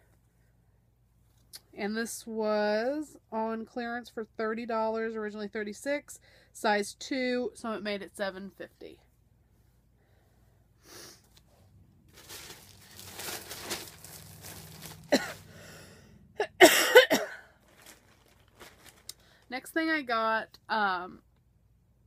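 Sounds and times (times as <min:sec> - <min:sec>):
clothing rustling: 0:11.2 - 0:15.6, 0:17.5 - 0:19.6.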